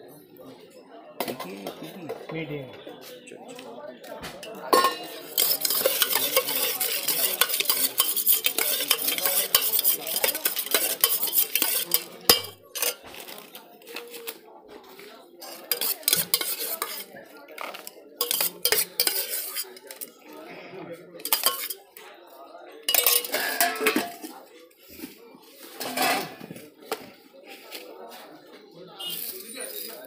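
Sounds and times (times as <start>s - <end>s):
spoon stirring in a metal bowl: 4.4s - 22.0s, 22.7s - 26.6s, 29.0s - 30.0s.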